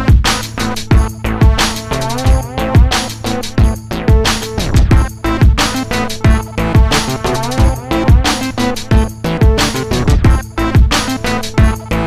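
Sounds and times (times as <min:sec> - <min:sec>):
deep bass drum hits: 0:03.6 - 0:05.6, 0:08.9 - 0:10.9.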